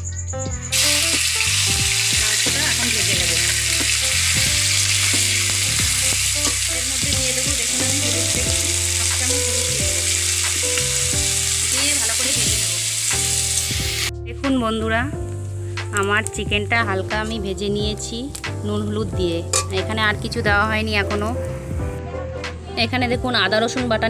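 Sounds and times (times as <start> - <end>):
chicken sizzling in hot oil: 0.7 - 14.1, 18.0 - 20.0.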